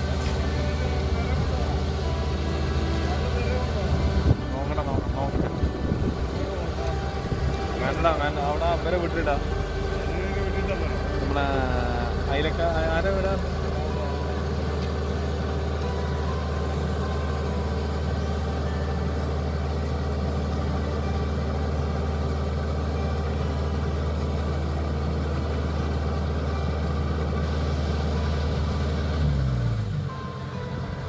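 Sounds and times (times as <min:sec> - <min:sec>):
diesel engine droning: 0:00.0 - 0:31.0.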